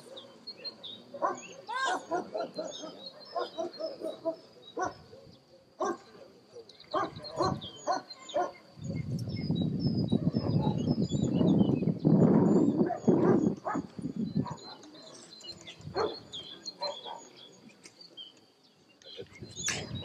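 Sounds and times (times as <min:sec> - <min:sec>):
birds chirping: 0:00.0 - 0:20.0
dog barking: 0:01.1 - 0:08.6, 0:10.2 - 0:10.8, 0:12.8 - 0:15.2, 0:15.9 - 0:16.2, 0:16.8 - 0:17.3.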